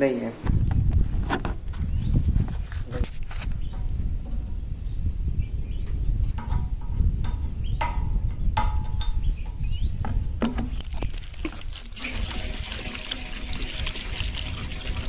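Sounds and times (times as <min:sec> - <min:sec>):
liquid pouring through funnel: 0:10.9 - 0:15.0.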